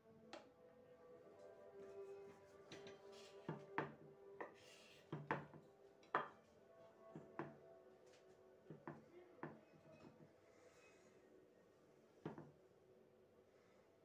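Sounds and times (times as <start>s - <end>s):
faint background music: 0.0s - 14.0s.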